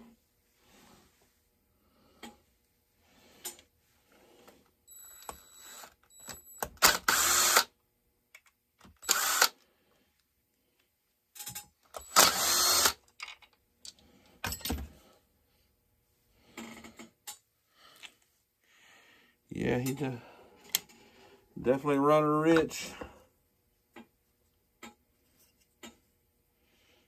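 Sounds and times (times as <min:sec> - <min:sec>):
cordless drill running: 0:05.0 - 0:07.7, 0:09.0 - 0:09.6, 0:12.0 - 0:13.0.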